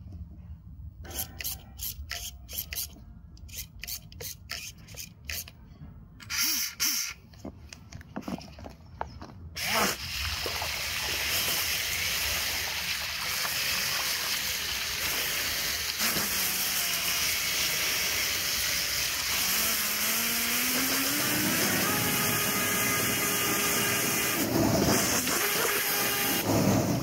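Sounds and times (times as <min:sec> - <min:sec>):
water jet hissing and splashing: 0:09.6 - 0:27.0
electric motor whine: 0:16.1 - 0:26.5.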